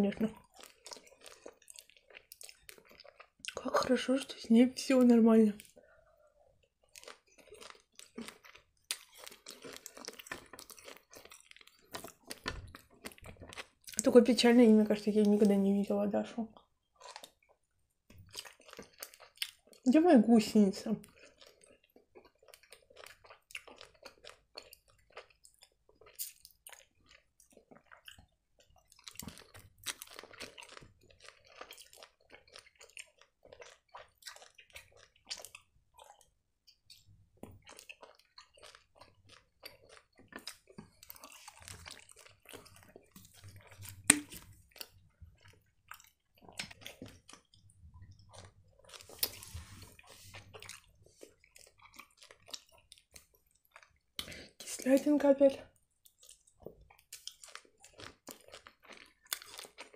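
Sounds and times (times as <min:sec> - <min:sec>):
chewing gummy candy: 0:00.0 - 0:59.9
mouth clicks and smacks: 0:42.5 - 0:45.0.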